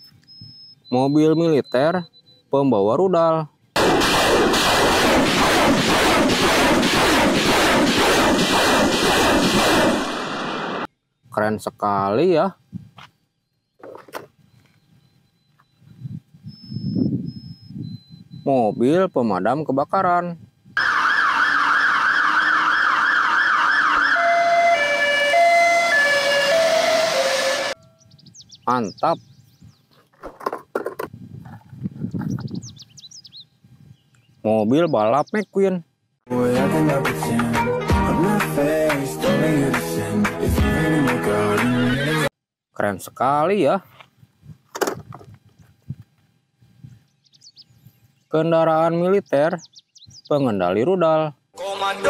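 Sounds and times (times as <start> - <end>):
rocket salvo roar: 3.8 - 10.9
fire engine siren: 20.8 - 27.9.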